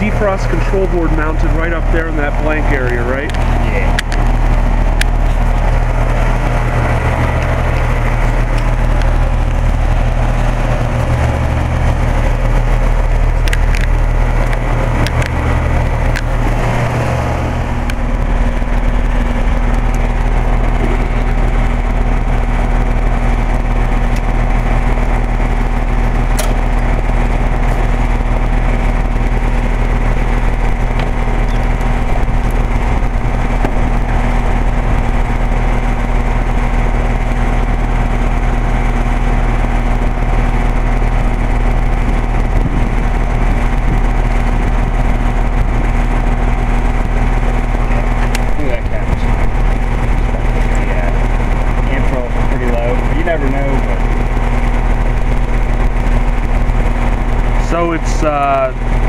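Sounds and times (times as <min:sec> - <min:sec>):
compressor hum: 0:00.0 - 0:59.0
condenser fan rushing: 0:00.0 - 0:59.0
air conditioner click: 0:26.3 - 0:26.8.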